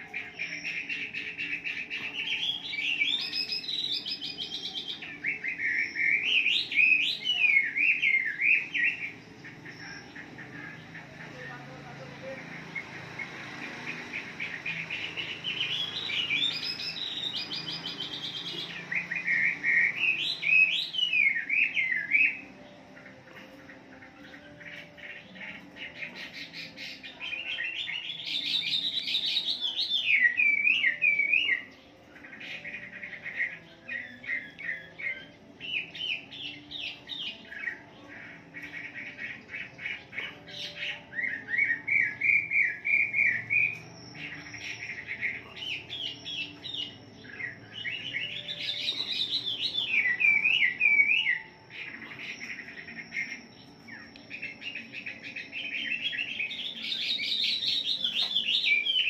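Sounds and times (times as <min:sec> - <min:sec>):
bird singing whistled phrases: 0:00.0 - 0:09.2, 0:14.8 - 0:22.6, 0:26.0 - 0:31.8, 0:38.6 - 0:59.0.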